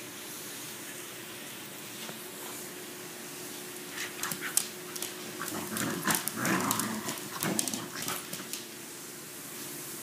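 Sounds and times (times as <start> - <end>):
claws scrabbling on wooden floor: 4.0 - 8.7
small dog growling: 5.4 - 8.4.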